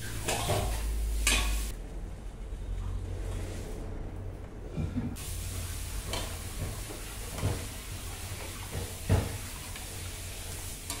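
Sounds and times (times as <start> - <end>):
pot hissing on gas burner: 0.0 - 1.7, 5.2 - 11.0.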